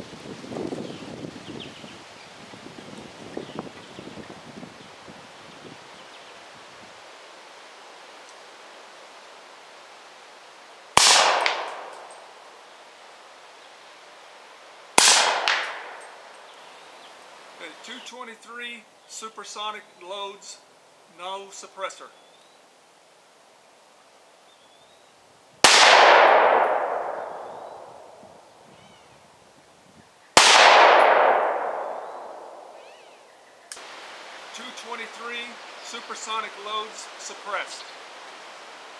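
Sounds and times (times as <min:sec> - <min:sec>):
pistol shot: 0:11.0 - 0:12.2, 0:15.0 - 0:16.1, 0:25.6 - 0:28.0, 0:30.4 - 0:32.8
faint sharp crack: 0:11.0 - 0:12.3, 0:15.0 - 0:16.2.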